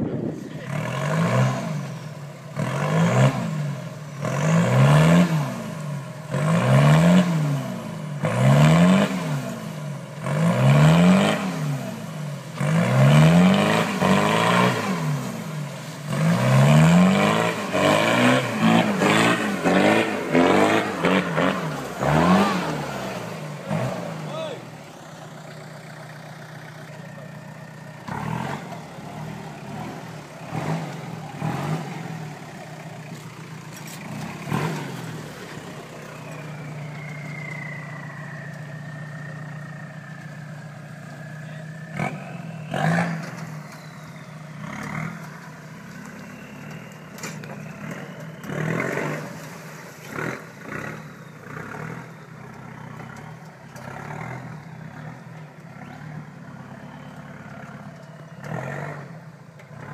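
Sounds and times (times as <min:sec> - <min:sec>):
engine droning: 0:00.0 - 0:59.9
engine revving bursts: 0:00.6 - 0:26.8, 0:28.0 - 0:36.8, 0:41.8 - 0:59.9
high whistle sinking in pitch: 0:35.8 - 0:39.6.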